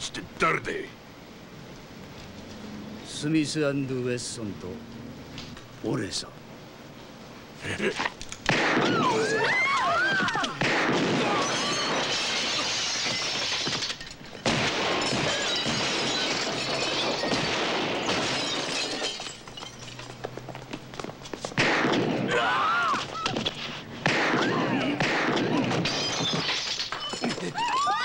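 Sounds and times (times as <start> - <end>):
people screaming: 8.8 - 12.7, 22.3 - 23.4, 24.3 - 25.0, 27.4 - 28.0
crash: 10.6 - 20.1, 21.6 - 27.4
glass and crockery smashing: 11.0 - 20.3, 25.4 - 28.0.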